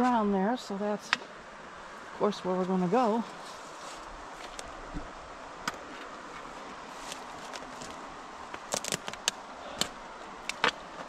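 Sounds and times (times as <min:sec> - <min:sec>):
steady background hiss: 0:00.0 - 0:11.0
brush rustling: 0:02.2 - 0:11.0
footsteps through undergrowth: 0:03.2 - 0:04.7, 0:06.2 - 0:08.0
twigs cracking: 0:05.6 - 0:11.0.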